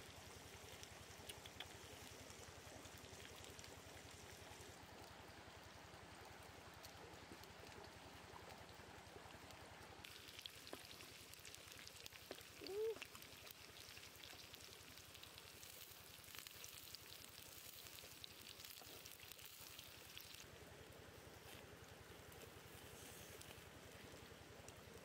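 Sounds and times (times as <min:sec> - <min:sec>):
oil sizzling in a frying pan: 0:10.0 - 0:20.5.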